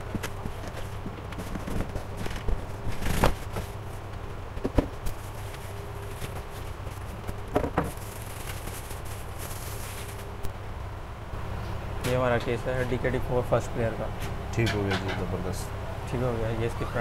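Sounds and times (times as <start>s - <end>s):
cardboard and plastic bag rustling: 0.0s - 10.4s
steady low hum: 0.0s - 17.0s
scrapes: 5.1s - 10.4s.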